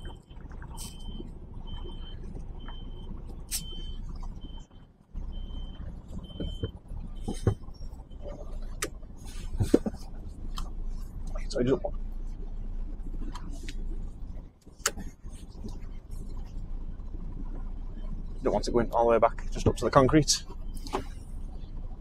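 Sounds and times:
reversing alarm beeping: 0:00.0 - 0:08.6
diesel engine running: 0:00.0 - 0:22.0.

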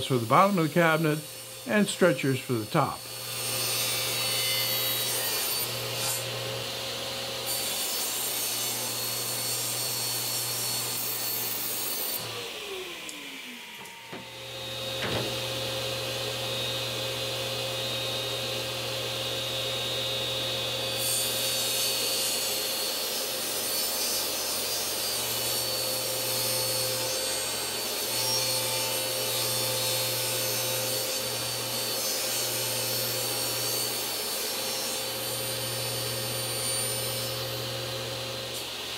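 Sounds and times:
table saw cutting plywood: 0:00.0 - 0:38.9.

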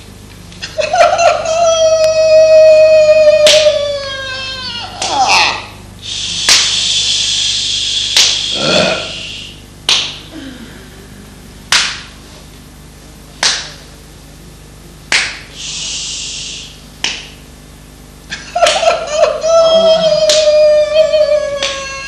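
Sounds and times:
sharp slap-like cracks: 0:06.4 - 0:06.8, 0:08.2 - 0:08.4, 0:09.9 - 0:10.3, 0:11.7 - 0:12.2, 0:13.4 - 0:13.8, 0:15.1 - 0:15.5, 0:17.0 - 0:17.4.

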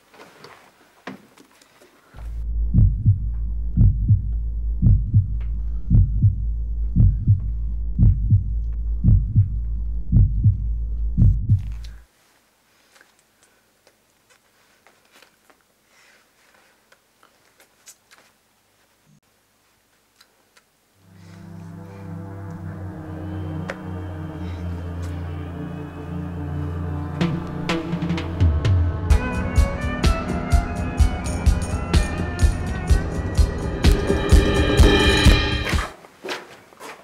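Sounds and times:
heartbeat thumps: 0:02.2 - 0:11.9
low steady hum: 0:02.2 - 0:12.0, 0:21.0 - 0:29.6.

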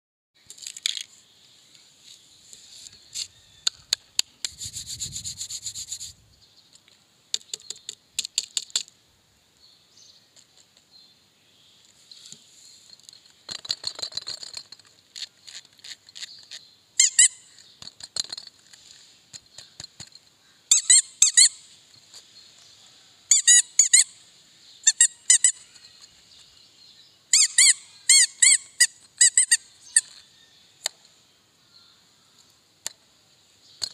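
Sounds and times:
rubber squeeze toy squeaking: 0:15.1 - 0:17.6, 0:20.7 - 0:21.6, 0:23.3 - 0:24.2, 0:24.8 - 0:26.0, 0:27.3 - 0:30.2.

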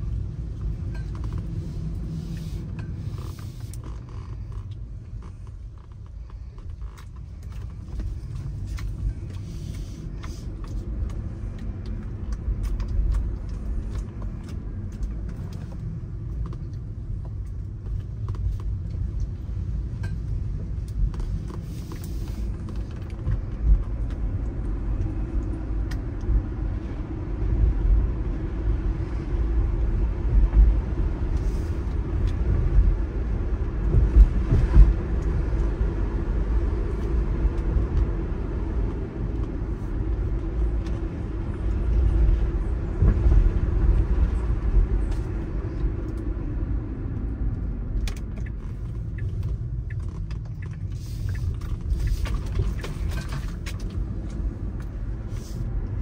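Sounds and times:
car road and engine rumble: 0:00.0 - 0:56.0.

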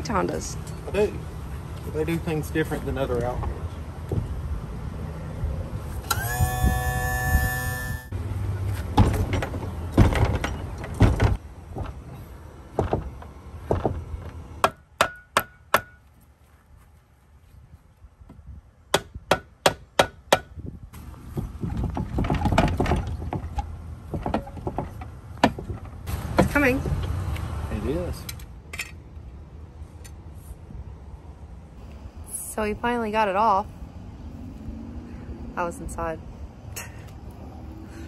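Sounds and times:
hammer striking wood on metal: 0:14.6 - 0:16.0, 0:18.9 - 0:20.5.

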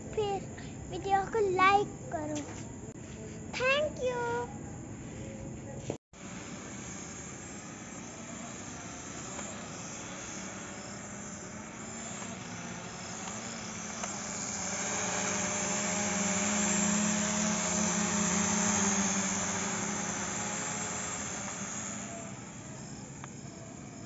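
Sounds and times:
drone propellers buzzing: 0:06.2 - 0:24.0.

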